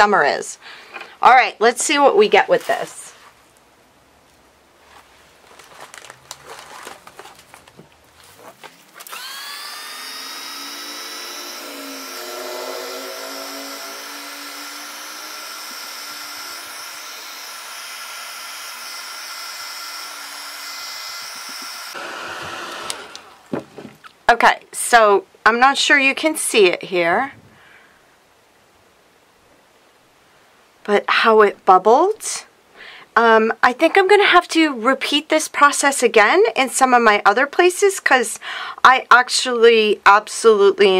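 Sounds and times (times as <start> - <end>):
heat tool fan whining: 9.0 - 23.7.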